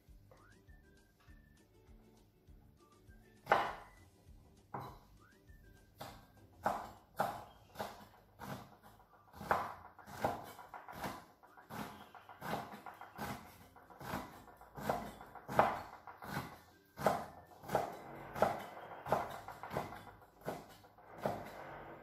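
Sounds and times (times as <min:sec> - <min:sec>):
knife cutting mushroom: 0:06.0 - 0:21.5.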